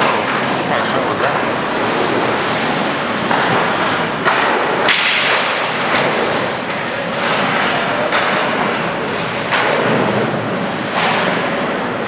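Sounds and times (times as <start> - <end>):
sharp crack: 3.2 - 8.8, 10.9 - 11.6
sticks and puck clacking: 3.2 - 8.8.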